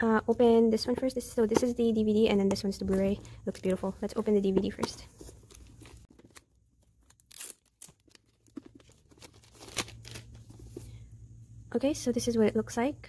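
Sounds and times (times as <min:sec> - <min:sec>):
plastic wrap tearing and crinkling: 0:05.5 - 0:10.5.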